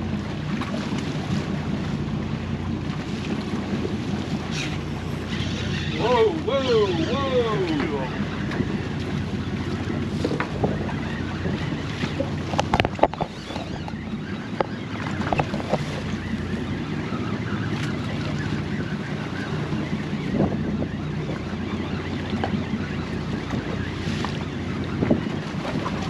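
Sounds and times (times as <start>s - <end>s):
water washing against boat hull: 0.0s - 26.0s
steady low hum: 4.4s - 8.6s.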